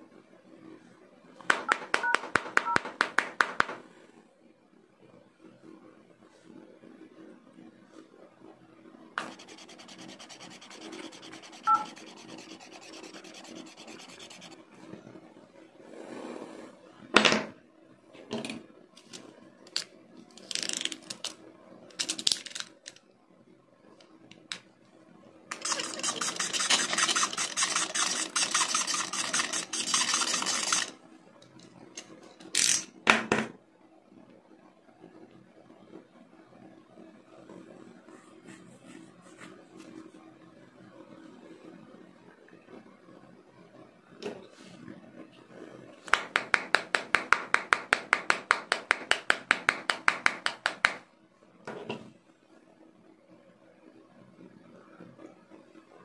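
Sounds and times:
screwdriver scratching glass screen: 0:09.2 - 0:14.6, 0:25.6 - 0:30.9.

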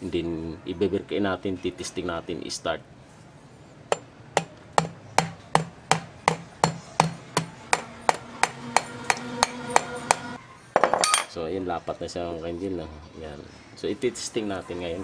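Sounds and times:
hammer tapping metal housing: 0:03.9 - 0:10.4.

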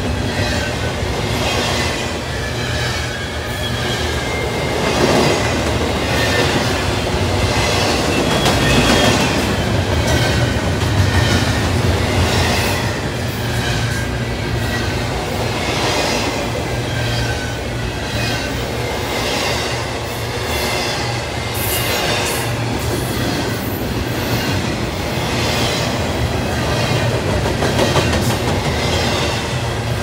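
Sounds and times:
train wheels rumbling and clacking: 0:00.0 - 0:30.0
high-pitched wheel squeals: 0:02.2 - 0:04.7.

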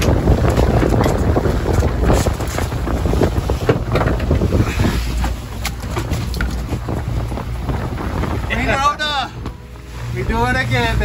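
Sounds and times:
splashes and knocks: 0:00.0 - 0:08.4
boat wake rushing: 0:00.0 - 0:11.0
outboard motor droning: 0:00.0 - 0:11.0
wind noise on microphone: 0:00.0 - 0:11.0.

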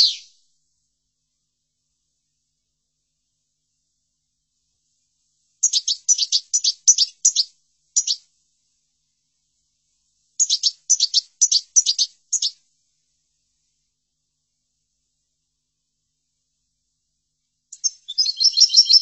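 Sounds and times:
goldfinch twittering song: 0:05.6 - 0:08.2, 0:10.4 - 0:12.6, 0:17.8 - 0:19.0.

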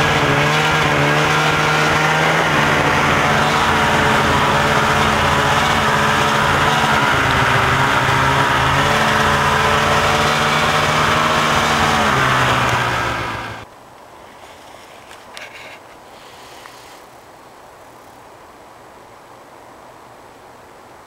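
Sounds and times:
snowmobile engine running: 0:00.0 - 0:13.6.

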